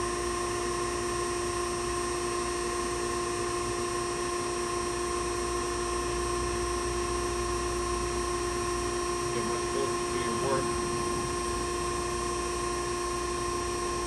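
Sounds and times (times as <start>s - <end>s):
surface grinder humming: 9.3s - 14.0s.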